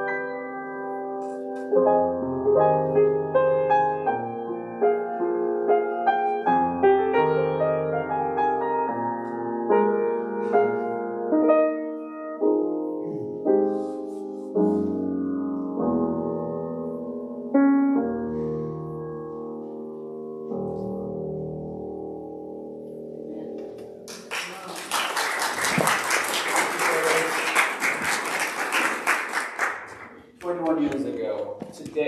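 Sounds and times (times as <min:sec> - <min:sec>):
slow piano chords: 0:00.0 - 0:24.6.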